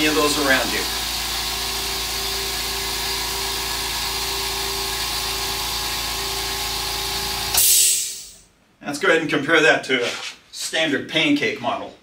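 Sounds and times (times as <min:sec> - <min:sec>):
air compressor humming: 0:00.0 - 0:08.5.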